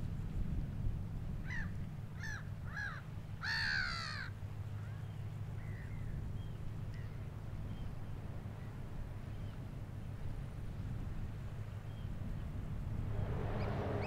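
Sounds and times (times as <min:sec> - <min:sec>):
steady low rumble: 0:05.6 - 0:14.0.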